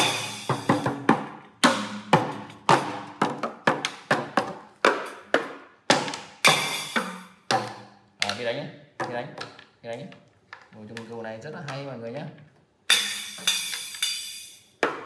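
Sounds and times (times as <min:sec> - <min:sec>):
toy drum kit hits: 0:00.0 - 0:08.5, 0:12.9 - 0:15.0.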